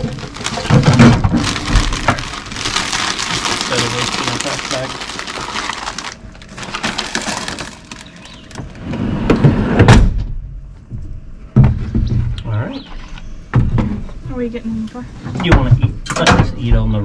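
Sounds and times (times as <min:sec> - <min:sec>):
plastic snack bag crinkling: 0:00.0 - 0:08.7.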